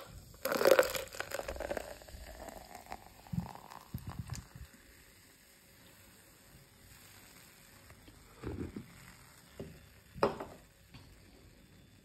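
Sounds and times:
cola pouring into paper cup: 0.0s - 5.4s
foam fizzing and crackling: 0.0s - 12.0s.

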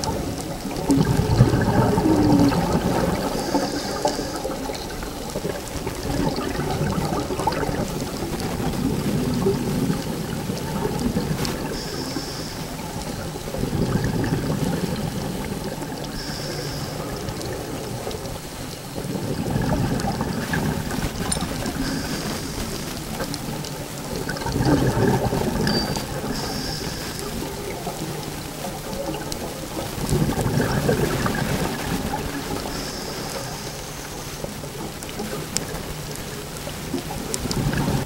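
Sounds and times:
exhaled air bubbles: 0.0s - 38.0s
regulator inhale hiss: 11.7s - 12.9s, 16.1s - 17.1s, 26.3s - 27.3s, 32.7s - 34.4s.

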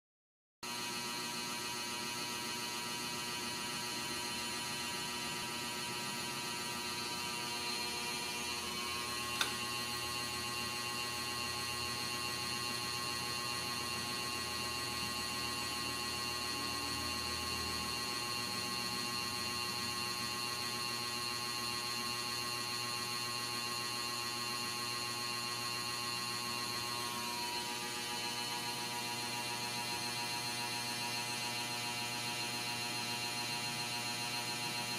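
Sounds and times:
buzzy electrical hum: 1.0s - 21.5s
sharp click: 9.3s - 9.7s.

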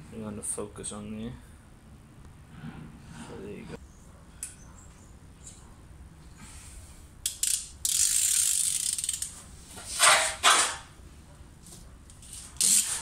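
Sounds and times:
socket ratchet clicking: 7.2s - 9.3s.

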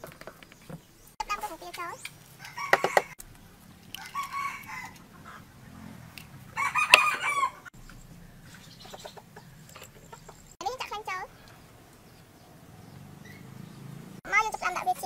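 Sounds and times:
chickens calling: 0.0s - 15.0s
rooster crowing: 2.4s - 3.2s, 3.8s - 5.6s, 6.4s - 7.7s.

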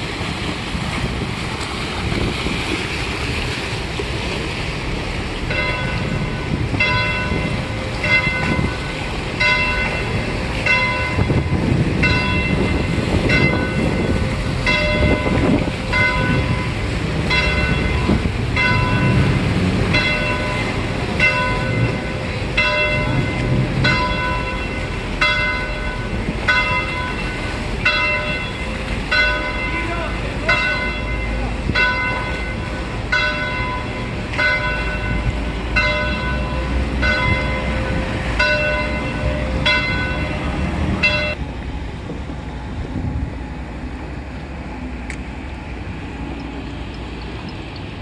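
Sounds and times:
churned water: 0.0s - 48.0s
motorboats rumbling: 0.0s - 48.0s
church bell tolling: 5.4s - 41.4s.

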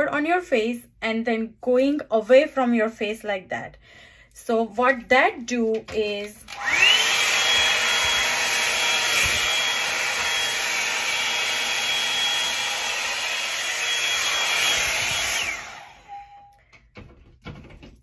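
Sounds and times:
hair dryer running: 6.1s - 16.6s.

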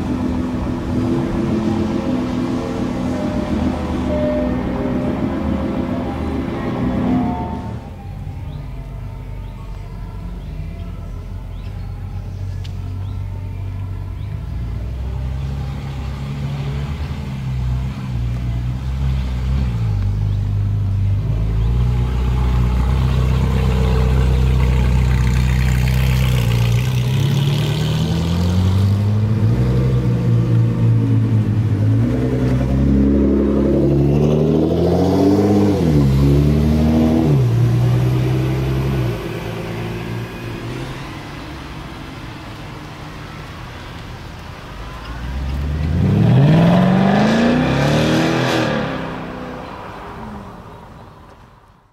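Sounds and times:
sports car engine revving: 21.4s - 43.0s, 45.2s - 49.8s.

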